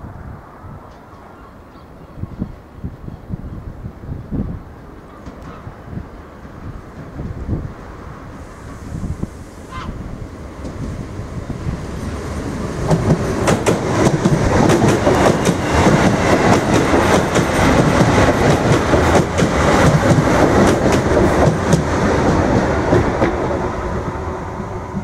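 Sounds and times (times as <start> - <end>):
train wheels clattering on rails: 12.7 - 23.7.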